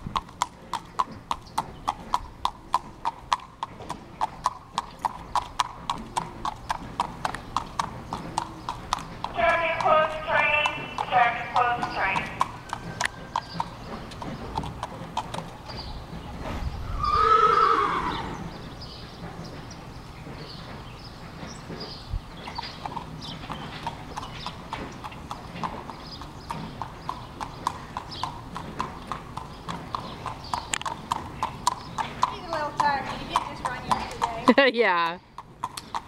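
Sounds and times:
hooves clip-clopping on pavement: 0:00.0 - 0:36.0
horse whinnying: 0:16.8 - 0:18.6.

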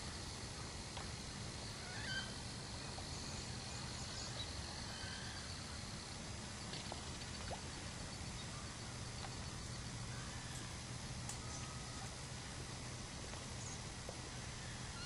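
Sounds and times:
faint short bird calls: 0:01.8 - 0:02.4.

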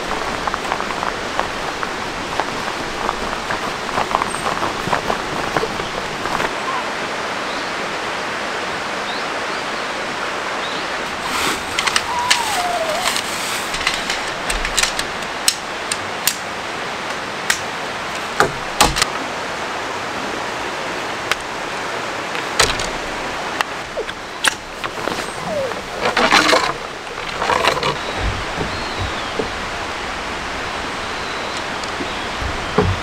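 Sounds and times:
tent poles clicking together: 0:11.1 - 0:16.5, 0:17.4 - 0:19.1, 0:23.6 - 0:30.0.

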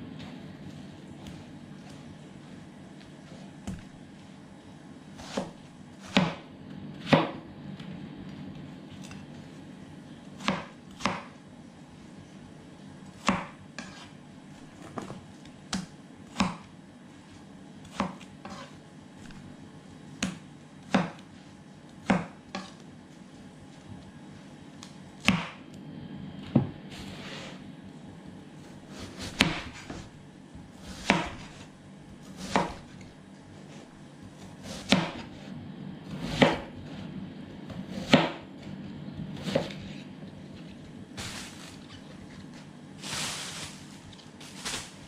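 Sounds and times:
knife chopping on cutting board: 0:05.2 - 0:06.4, 0:07.0 - 0:07.4, 0:10.4 - 0:11.4, 0:13.2 - 0:14.1, 0:15.7 - 0:16.7, 0:17.9 - 0:18.7, 0:20.2 - 0:21.3, 0:22.0 - 0:22.8, 0:25.2 - 0:25.6, 0:28.9 - 0:30.1, 0:30.8 - 0:33.0, 0:34.6 - 0:35.4, 0:36.1 - 0:36.7, 0:37.7 - 0:38.5, 0:39.4 - 0:40.0.

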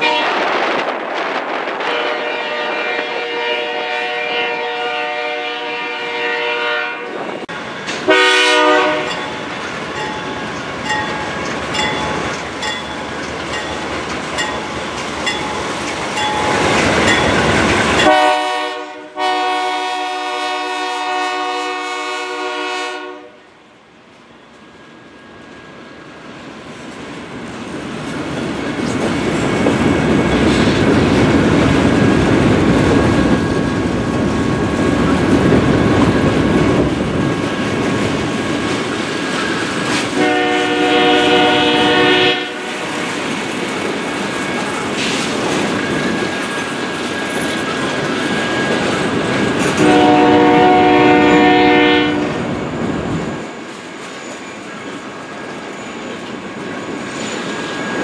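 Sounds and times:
train air horn blasts: 0:00.0 - 0:00.6, 0:01.8 - 0:07.2, 0:08.1 - 0:09.2, 0:18.0 - 0:23.5, 0:40.1 - 0:43.0, 0:49.7 - 0:52.5
freight train wheels on rail: 0:00.0 - 0:58.0.

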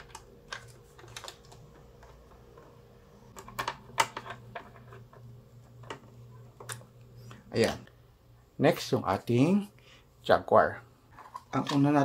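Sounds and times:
plastic parts clicking: 0:00.0 - 0:02.7.

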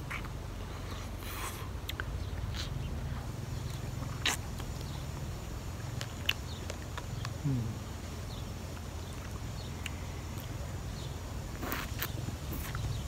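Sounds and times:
steady low hum: 0:00.0 - 0:13.0
sucking and slurping ice lolly: 0:11.5 - 0:12.9.

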